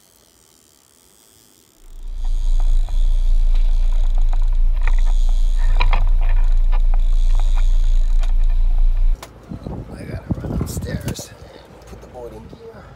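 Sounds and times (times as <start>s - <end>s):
fishing gear clicks and rattles: 1.8s - 9.2s
boat low rumble: 1.9s - 9.2s.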